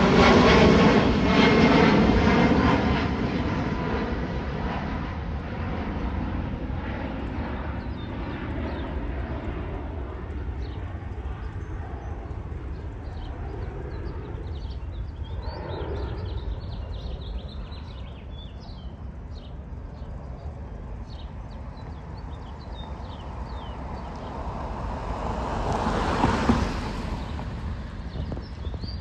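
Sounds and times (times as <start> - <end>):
distant jet airliner rumble: 0.0 - 29.0
small birds chirping: 5.9 - 24.9, 26.0 - 29.0.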